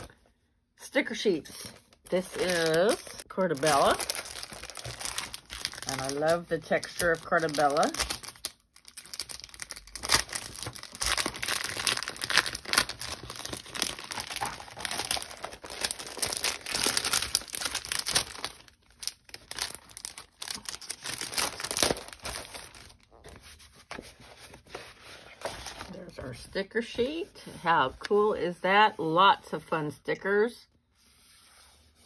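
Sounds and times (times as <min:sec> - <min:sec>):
plastic packaging crinkling: 0:01.6 - 0:23.9.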